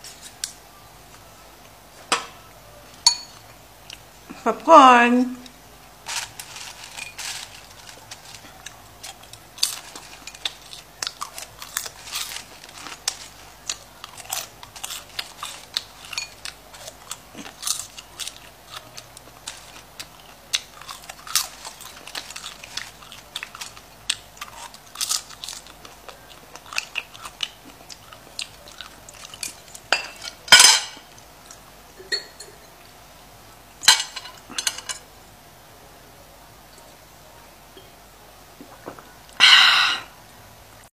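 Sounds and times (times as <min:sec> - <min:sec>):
popcorn crunching while chewing: 0:05.4 - 0:31.7.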